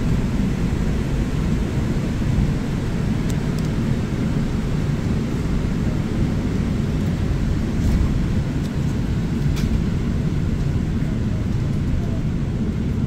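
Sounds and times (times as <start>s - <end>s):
bus engine rumble: 0.0s - 13.0s.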